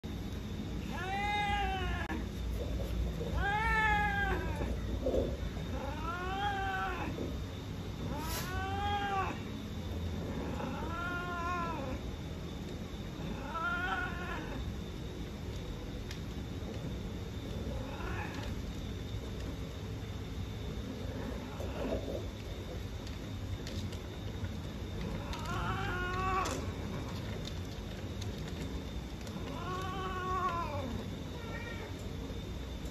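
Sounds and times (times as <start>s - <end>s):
cat yowling: 0.8s - 2.3s, 3.2s - 4.9s, 5.7s - 7.3s, 8.1s - 9.5s, 10.4s - 12.0s, 13.2s - 14.8s, 17.8s - 18.7s, 25.1s - 27.1s, 29.4s - 32.0s.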